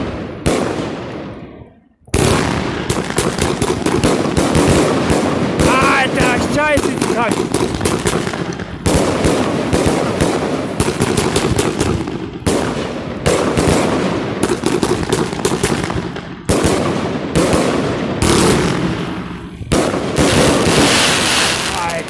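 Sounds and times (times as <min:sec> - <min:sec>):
fireworks bangs: 0:00.0 - 0:22.0
fireworks crackling: 0:00.0 - 0:22.0.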